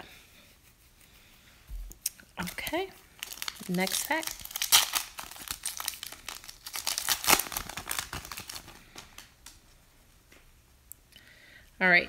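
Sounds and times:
wrapper crinkling and tearing: 2.4 - 9.6.

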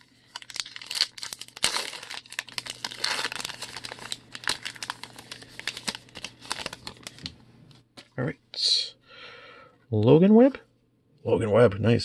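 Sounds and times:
wrapper tearing and crinkling: 0.0 - 7.3.

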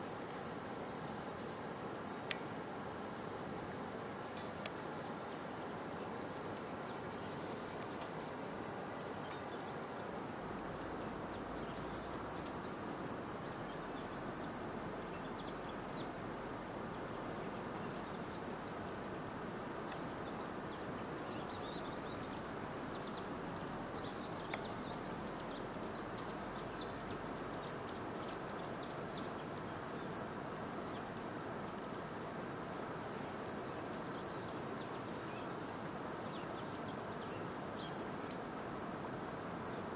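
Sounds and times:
outdoor ambient noise: 0.0 - 39.9.

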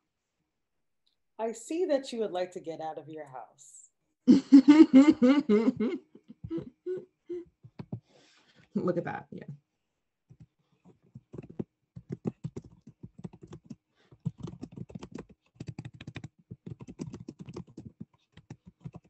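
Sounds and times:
typing on computer keyboard: 11.1 - 19.0.

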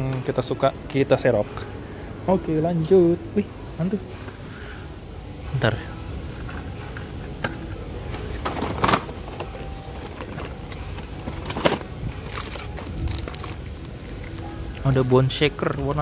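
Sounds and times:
low background hum: 0.0 - 16.0
plastic packaging crinkling: 8.5 - 14.9.

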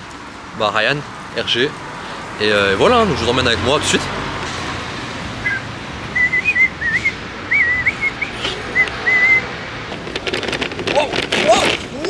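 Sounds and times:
person whistling a tune: 5.4 - 9.5.

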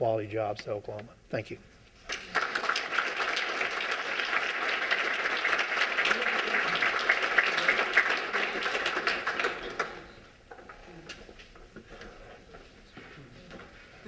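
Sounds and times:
audience applauding: 2.1 - 10.3.

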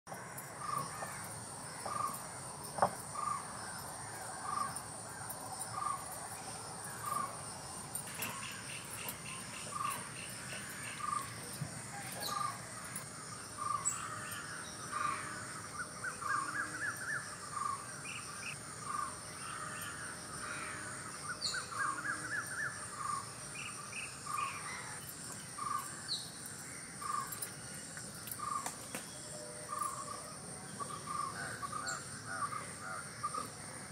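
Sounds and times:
crickets trilling: 0.1 - 33.9
crows cawing: 19.4 - 21.1.

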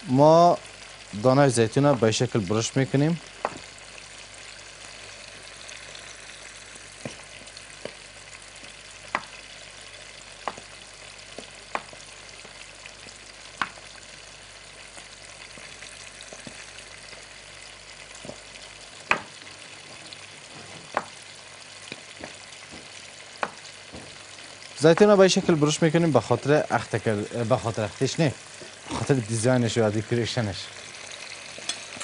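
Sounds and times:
mushrooms sizzling in oil: 0.0 - 32.0
knife chopping on wooden board: 19.1 - 19.3, 22.2 - 24.2.

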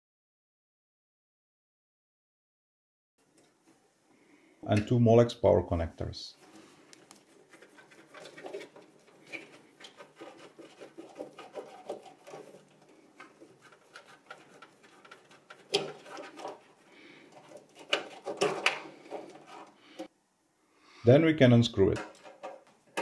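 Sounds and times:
cable rustle: 6.4 - 20.1
plastic scrapes: 6.4 - 20.1.

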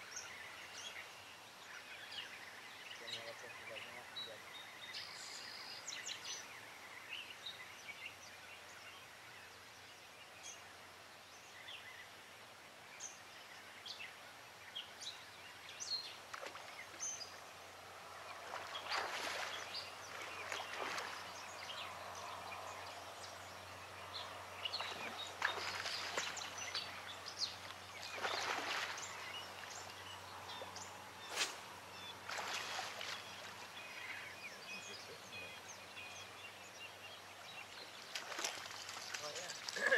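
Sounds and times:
birds chirping and singing: 0.0 - 10.7, 13.0 - 39.9
fish splashing at surface: 28.2 - 29.0, 32.3 - 33.2.

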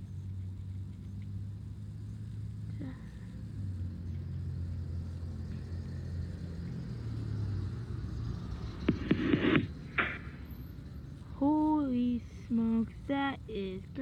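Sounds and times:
motor-like rumble with hum: 0.0 - 14.0
sharp clicks: 8.8 - 10.4
rustling near microphone: 8.9 - 10.4.

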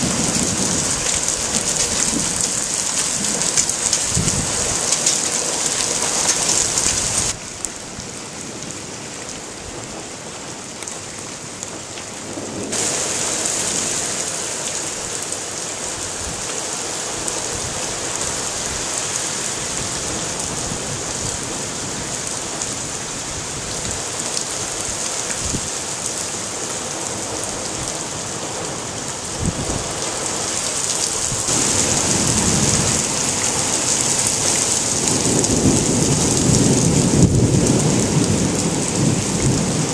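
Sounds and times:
thunder rumbling: 0.0 - 8.9, 27.1 - 39.9
heavy rain on paving: 0.0 - 39.9.

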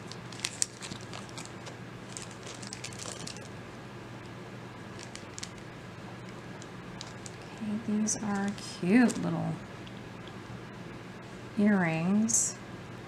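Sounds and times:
earrings clicking and rustling: 0.0 - 3.5, 5.0 - 5.6, 6.2 - 10.0
low room hum: 0.0 - 13.0.

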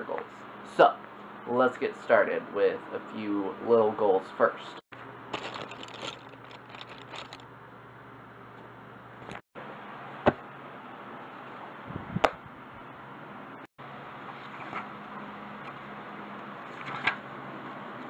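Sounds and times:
small clicks and rustles: 5.4 - 7.4.

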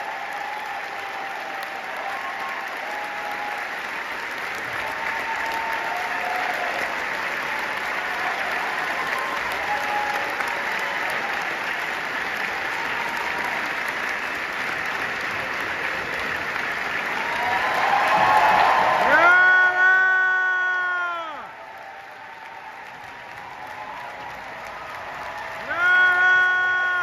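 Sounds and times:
audience applauding: 0.0 - 27.0.

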